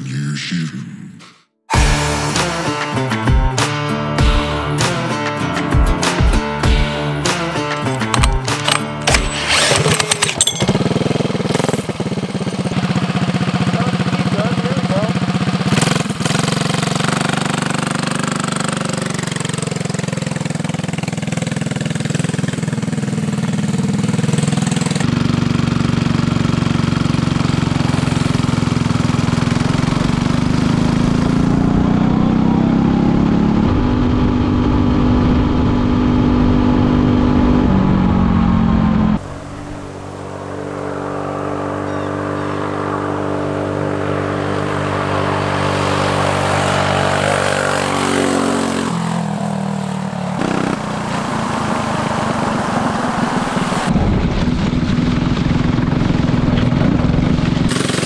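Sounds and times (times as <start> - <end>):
go-kart engine running: 7.3 - 58.0
recoil cord yanks: 7.8 - 10.9.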